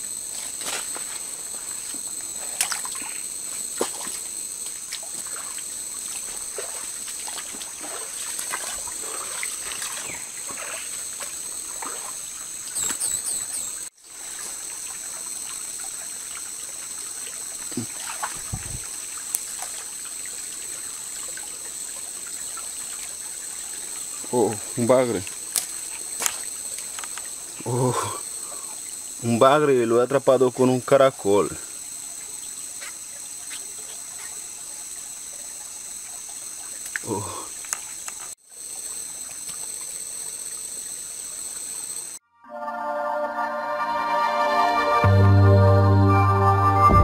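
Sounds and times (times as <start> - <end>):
high-pitched insect drone: 0.0 - 42.2
stream trickling: 0.0 - 42.2
water splashing: 0.4 - 13.0, 14.1 - 27.5.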